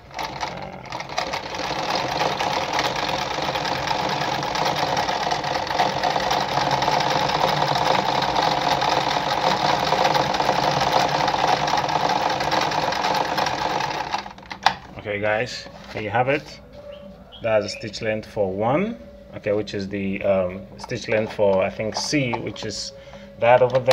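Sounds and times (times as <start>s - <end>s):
electric sewing machine running: 0.0s - 14.4s.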